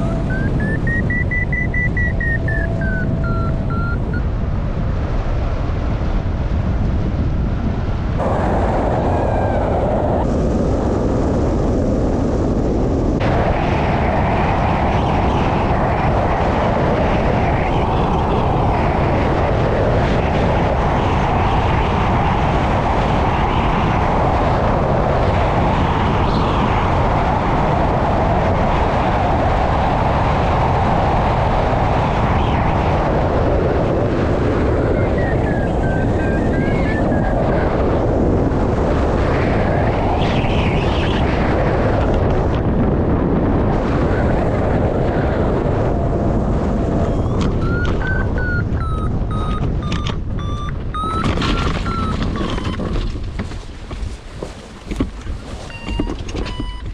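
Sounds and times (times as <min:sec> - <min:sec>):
high rising and falling tone: 0:00.0 - 0:04.4, 0:34.2 - 0:37.7, 0:46.7 - 0:52.8
wind noise on microphone: 0:00.0 - 0:56.9.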